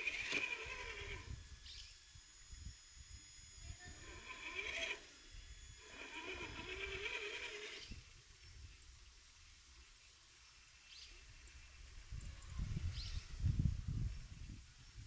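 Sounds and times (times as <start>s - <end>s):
toy car electric motor whining: 0.0s - 8.2s.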